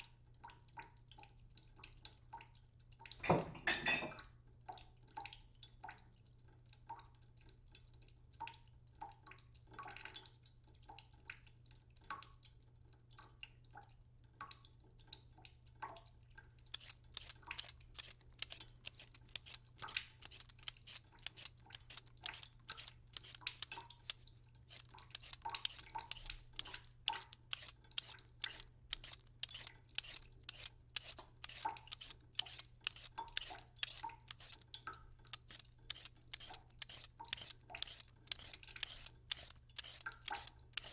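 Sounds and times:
knife cutting on plastic board: 0:16.8 - 0:34.6, 0:35.4 - 0:40.9.

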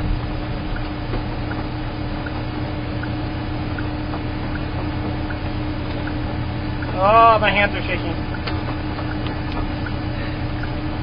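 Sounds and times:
vehicle engine droning: 0:00.0 - 0:11.0
faint light ticking: 0:08.2 - 0:10.8.

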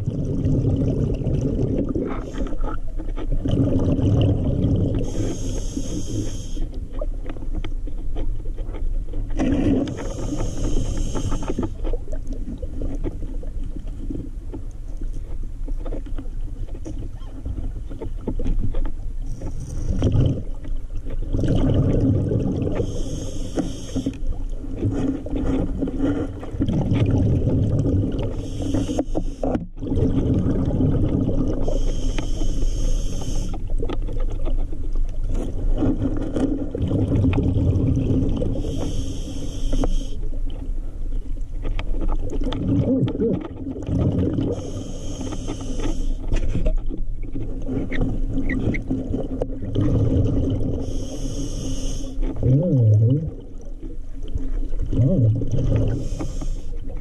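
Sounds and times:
exhaled bubbles rumbling: 0:00.0 - 0:08.0, 0:09.0 - 0:23.3, 0:24.2 - 0:39.3, 0:40.2 - 0:45.0, 0:45.6 - 0:57.0
regulator hissing inhale: 0:05.0 - 0:06.8, 0:09.9 - 0:11.8, 0:22.8 - 0:24.3, 0:28.3 - 0:29.5, 0:31.6 - 0:33.6, 0:38.5 - 0:40.3, 0:44.5 - 0:46.3, 0:50.8 - 0:52.3, 0:55.8 - 0:56.9.

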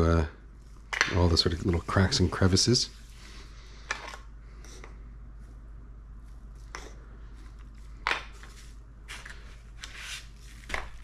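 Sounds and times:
low steady hum: 0:00.0 - 0:11.0
hands rubbing meat: 0:00.6 - 0:03.4.

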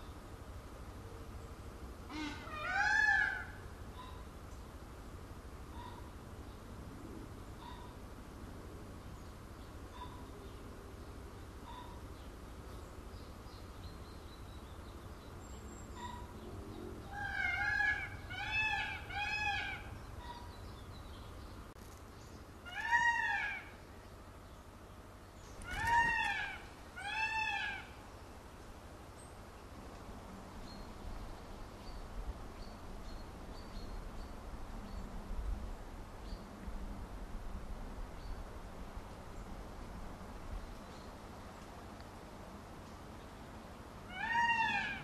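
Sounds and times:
peacock calling: 0:02.1 - 0:04.3, 0:05.7 - 0:06.1, 0:11.6 - 0:12.2, 0:15.9 - 0:16.4, 0:17.0 - 0:20.9, 0:22.6 - 0:24.0, 0:25.4 - 0:28.1, 0:44.0 - 0:45.0.

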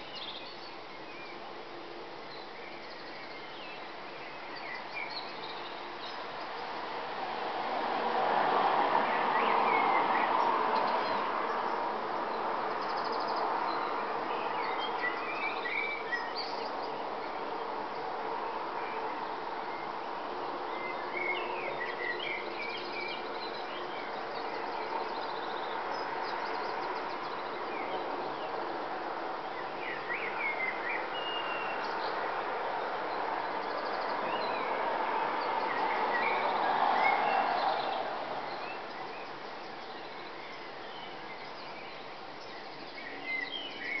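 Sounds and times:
birds chirping and trilling: 0:35.4 - 0:44.0.

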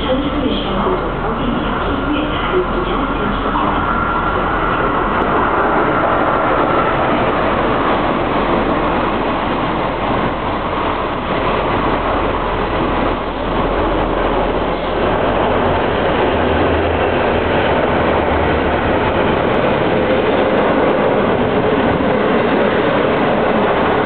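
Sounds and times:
diesel locomotives approaching: 0:00.0 - 0:24.0
passenger train running: 0:00.0 - 0:24.0.

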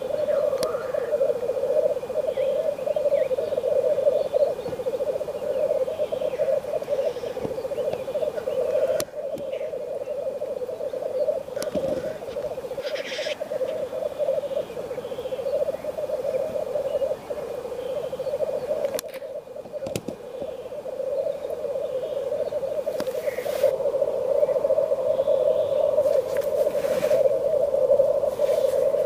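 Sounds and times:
grouse bubbling cooing chorus: 0:00.0 - 0:29.0
grouse hissing call: 0:00.0 - 0:29.0.

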